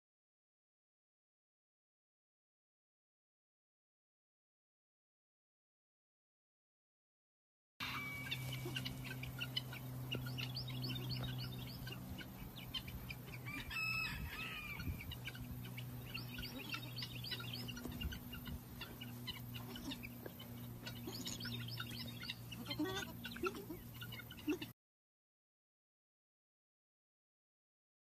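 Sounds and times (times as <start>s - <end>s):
birds chirping: 7.8s - 24.7s
steady low hum: 7.8s - 24.7s.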